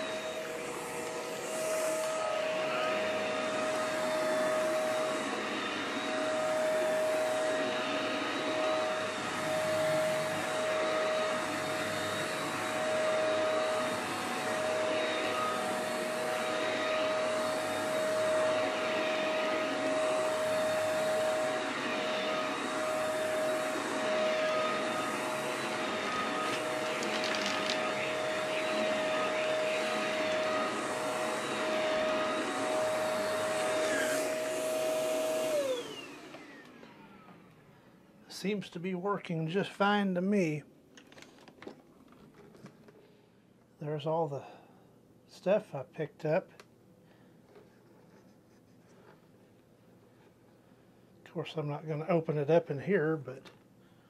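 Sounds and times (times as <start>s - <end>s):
vacuum motor winding down: 0.0s - 37.6s
vacuum cleaner running: 0.0s - 40.6s.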